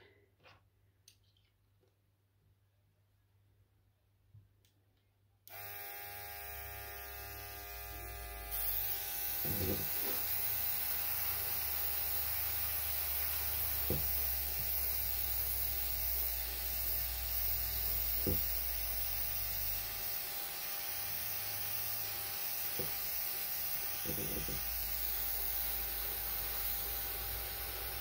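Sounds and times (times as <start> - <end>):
compressor motor humming: 5.5 - 28.0
airbrush air hiss: 22.7 - 28.0.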